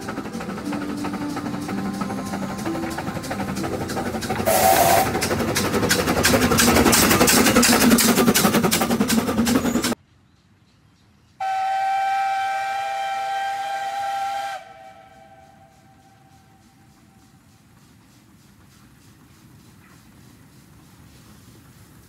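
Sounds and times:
steam whistle: 0:00.0 - 0:05.3, 0:11.4 - 0:16.9
steam locomotive hissing and clattering: 0:00.0 - 0:10.0, 0:11.4 - 0:22.0.

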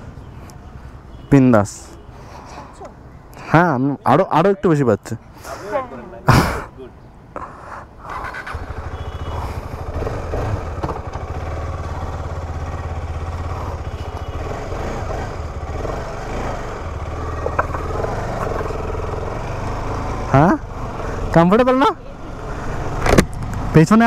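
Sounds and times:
motorcycle engine running at low revs: 0:08.5 - 0:20.5.

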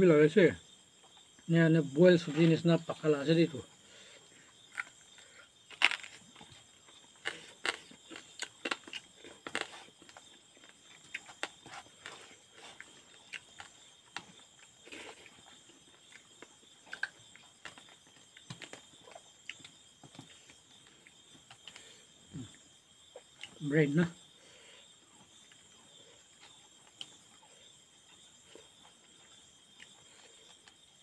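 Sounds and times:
insects chirring: 0:00.0 - 0:31.0
chewing and lip smacks: 0:07.2 - 0:20.3.

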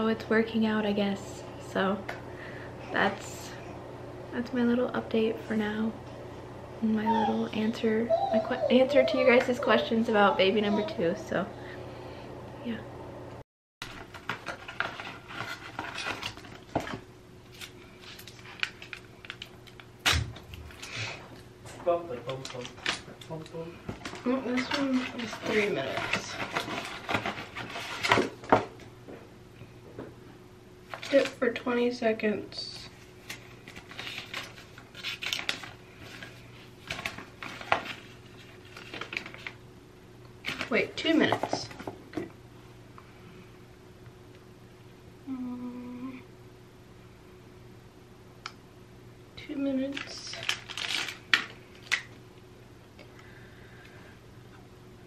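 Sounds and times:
wrappers crinkling and tearing: 0:17.4 - 0:20.9, 0:22.3 - 0:28.3, 0:33.1 - 0:39.6, 0:49.9 - 0:52.2.

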